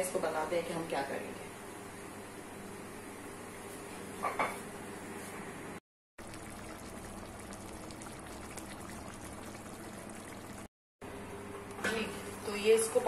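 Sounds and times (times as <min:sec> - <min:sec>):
food simmering in pot: 0:06.2 - 0:10.7.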